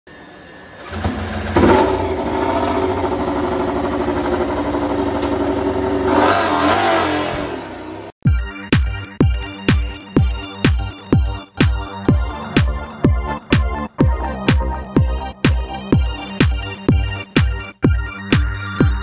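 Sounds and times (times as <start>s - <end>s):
motorcycle engine revving: 0.7s - 8.1s
electronic music with heavy beat: 8.2s - 19.0s.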